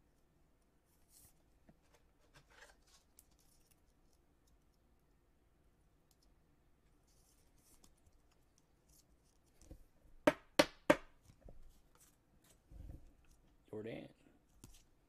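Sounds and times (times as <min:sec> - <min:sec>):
trading cards and packaging rustling: 0:01.1 - 0:03.9.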